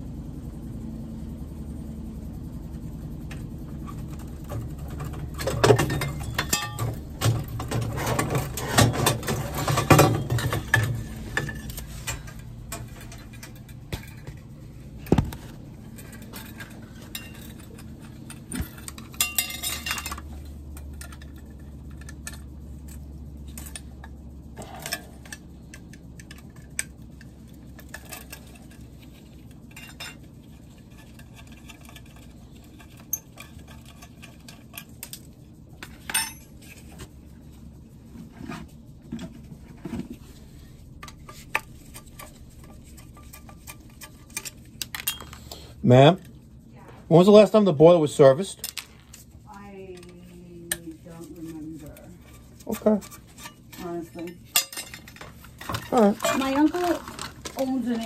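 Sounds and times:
steady low hum: 0:00.0 - 0:58.0
metal tools clinking and clattering: 0:03.8 - 0:14.6, 0:15.4 - 0:37.1, 0:41.0 - 0:46.3, 0:47.1 - 0:58.0.

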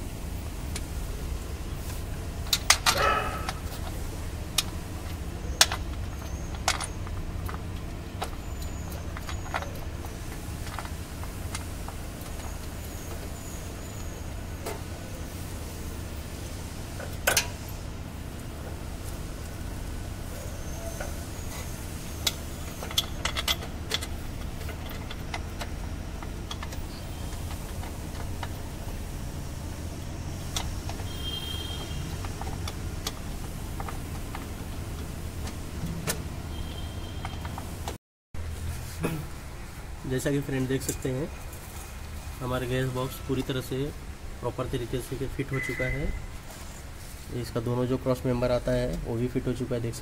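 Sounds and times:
metal clattering: 0:02.4 - 0:04.0
tools and parts clinking: 0:02.4 - 0:13.5, 0:20.4 - 0:28.9
metal tools clinking: 0:02.5 - 0:03.9.

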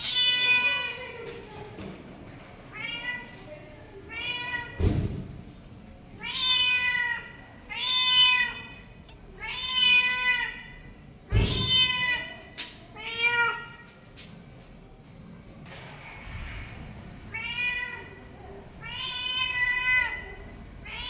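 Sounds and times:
cat meowing: 0:06.2 - 0:08.8, 0:09.4 - 0:10.8, 0:17.3 - 0:18.2, 0:18.8 - 0:21.0.

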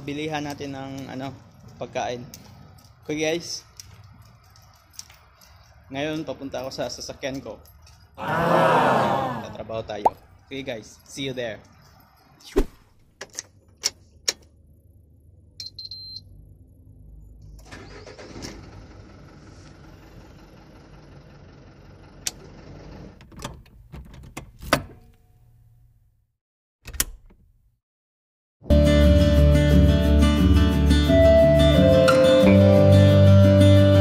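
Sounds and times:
car engine starting and idling: 0:16.4 - 0:24.0.

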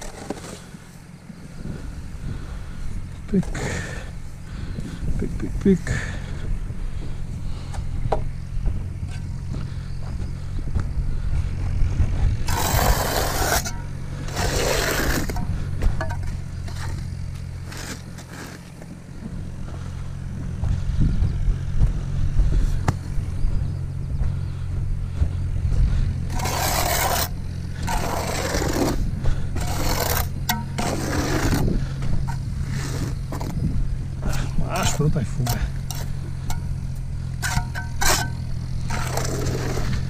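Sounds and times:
machine humming low: 0:00.0 - 0:40.0
trowel scraping wet mortar: 0:12.4 - 0:18.8, 0:26.3 - 0:31.7, 0:32.3 - 0:33.6, 0:34.3 - 0:36.7, 0:37.3 - 0:40.0.

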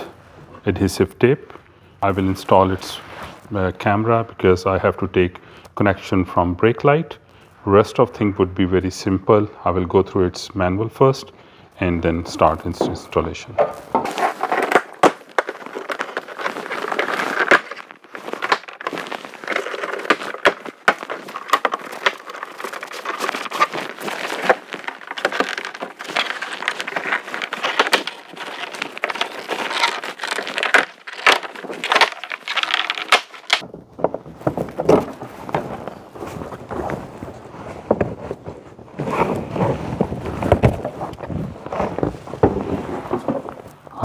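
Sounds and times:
handling rustle: 0:12.4 - 0:43.8.

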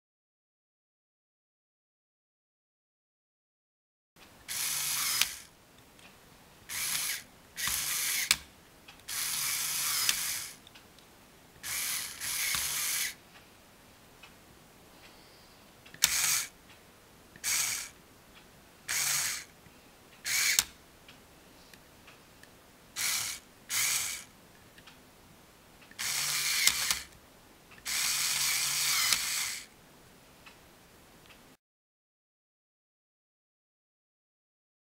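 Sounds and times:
toy motor whirring through gears: 0:04.5 - 0:05.5, 0:06.7 - 0:08.4, 0:09.1 - 0:10.6, 0:11.6 - 0:13.2, 0:16.0 - 0:16.5, 0:17.4 - 0:18.0, 0:18.9 - 0:19.5, 0:20.2 - 0:20.7, 0:23.0 - 0:24.3, 0:25.9 - 0:27.2, 0:27.8 - 0:29.7
sharp click: 0:09.8 - 0:11.0, 0:15.9 - 0:16.5, 0:20.3 - 0:20.8, 0:25.9 - 0:27.2, 0:27.8 - 0:29.5.

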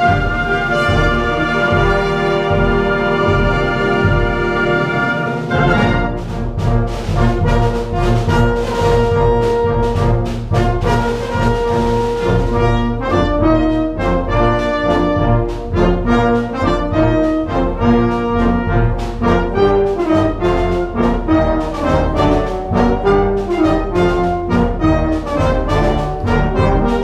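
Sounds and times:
concert wind band playing: 0:00.0 - 0:27.0.

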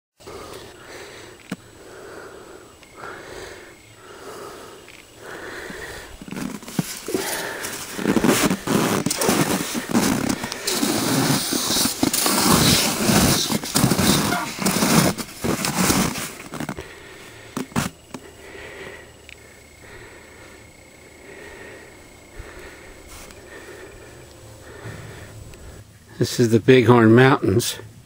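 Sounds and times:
skis sliding over crusted snow: 0:06.2 - 0:16.8, 0:17.4 - 0:18.0.

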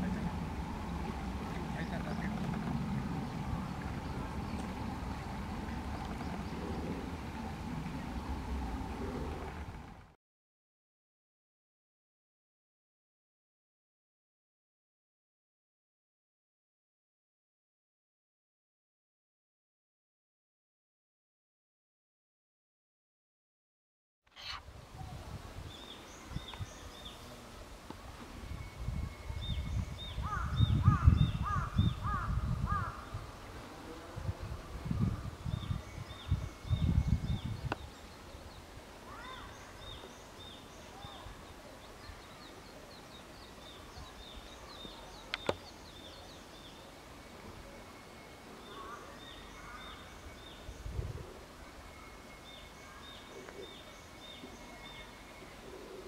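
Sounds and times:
songbird singing: 0:00.0 - 0:09.8, 0:24.4 - 0:56.0
low rumbling noise: 0:00.0 - 0:10.2
crow cawing: 0:30.3 - 0:33.0.

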